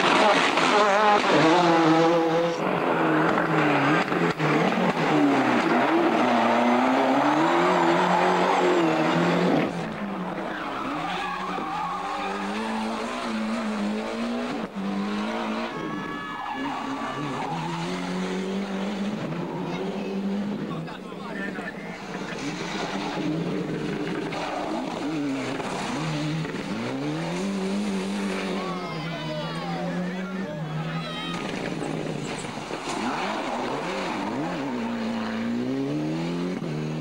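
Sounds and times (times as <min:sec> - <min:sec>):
rally car engines revving: 0:00.0 - 0:37.0
tyres skidding on tarmac: 0:00.0 - 0:37.0.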